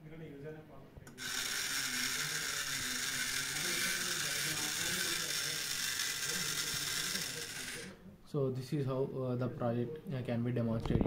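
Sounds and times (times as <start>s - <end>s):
electric motor gear whir: 1.2s - 8.0s.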